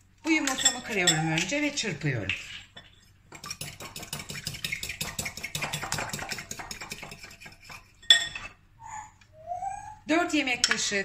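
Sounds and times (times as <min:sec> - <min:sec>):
fork clinking in glass bowl: 0:00.4 - 0:01.5, 0:02.3 - 0:08.6.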